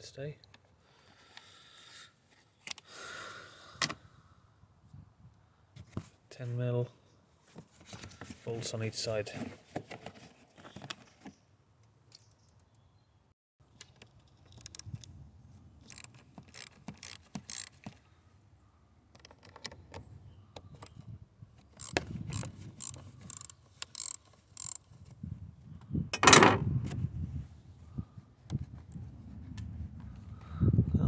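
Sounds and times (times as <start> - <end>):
metal tools clicking and rattling: 21.8 - 24.9.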